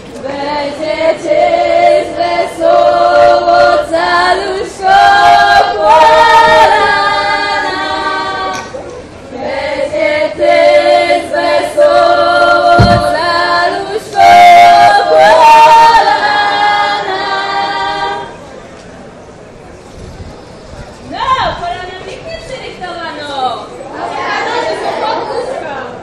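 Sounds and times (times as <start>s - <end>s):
women and girls singing folk song: 0.0s - 18.4s.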